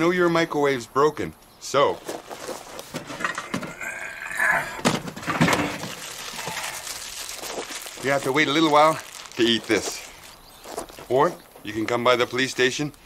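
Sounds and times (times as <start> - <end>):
rustling in cardboard box: 1.9 - 3.3, 5.0 - 11.7
knocks and clunks of items: 2.0 - 4.0, 4.7 - 6.8.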